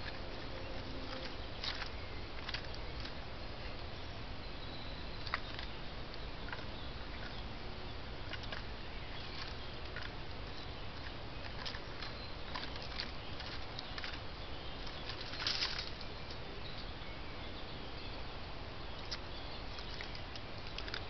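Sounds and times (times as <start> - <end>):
faint clicks and rustles: 0.0 - 3.2, 8.2 - 16.9.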